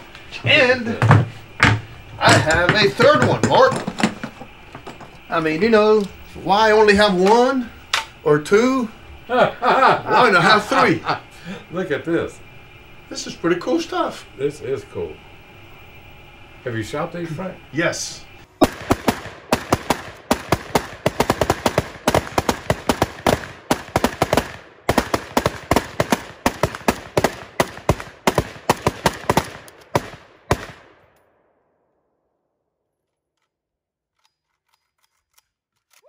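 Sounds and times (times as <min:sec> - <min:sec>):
rapid overlapping gunfire: 0:18.6 - 0:31.1.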